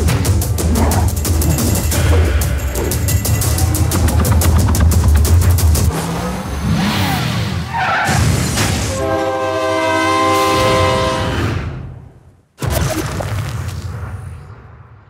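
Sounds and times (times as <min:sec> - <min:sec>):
trailer music with heavy beat: 0:00.0 - 0:09.0
train horn chord: 0:08.9 - 0:11.4.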